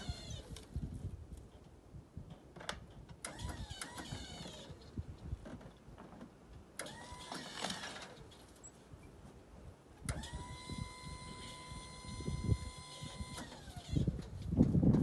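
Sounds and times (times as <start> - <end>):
crane motor whining: 6.8 - 8.3, 10.1 - 14.3.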